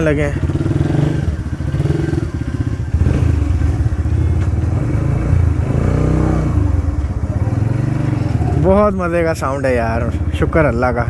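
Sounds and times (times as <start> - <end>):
motorcycle engine pulling away: 0.0 - 8.8.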